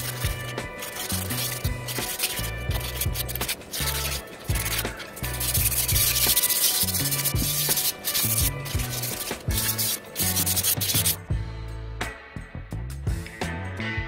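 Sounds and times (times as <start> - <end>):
sandpaper rubbing rusty metal: 0.0 - 11.2.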